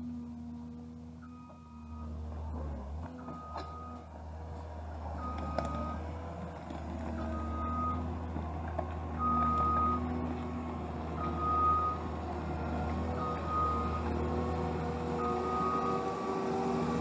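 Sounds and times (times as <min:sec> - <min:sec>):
diesel engine running: 0:00.0 - 0:17.0
reversing alarm beeping: 0:01.2 - 0:02.2, 0:03.2 - 0:04.1, 0:07.2 - 0:08.1, 0:11.2 - 0:12.0, 0:13.2 - 0:14.1, 0:15.2 - 0:16.3.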